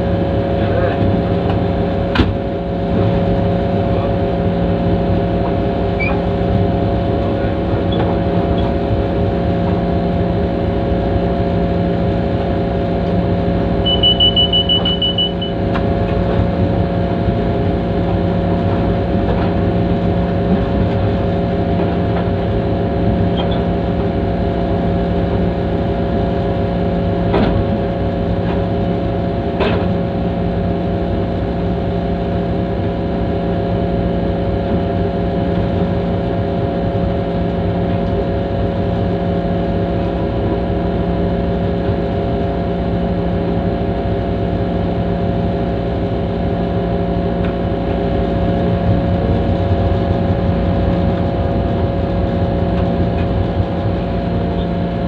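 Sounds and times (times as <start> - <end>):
locomotive diesel engine running: 0.0 - 55.0
high-pitched tone: 13.8 - 15.6.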